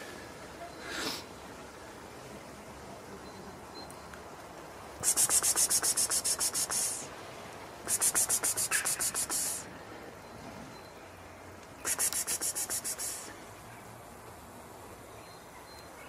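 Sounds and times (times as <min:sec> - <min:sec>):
fast rasping strokes: 0:07.9 - 0:09.6, 0:11.9 - 0:13.3.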